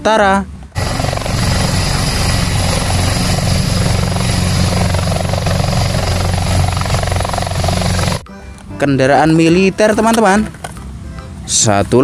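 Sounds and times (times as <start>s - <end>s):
low engine drone: 0.0s - 8.3s
helicopter rotor blades chopping: 0.7s - 8.2s.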